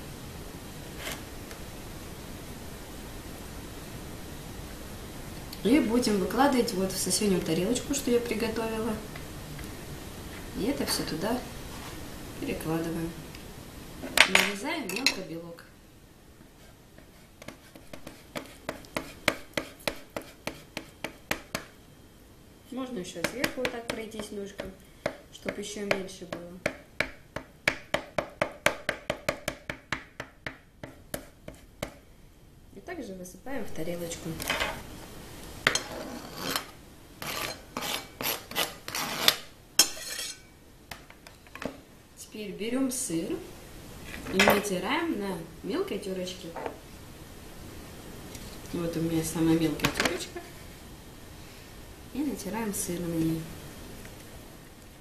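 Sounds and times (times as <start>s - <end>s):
knife scraping cutting board: 16.6s - 21.0s, 35.7s - 40.4s
knife chopping on plastic board: 17.0s - 21.7s, 23.2s - 26.1s, 26.7s - 32.0s.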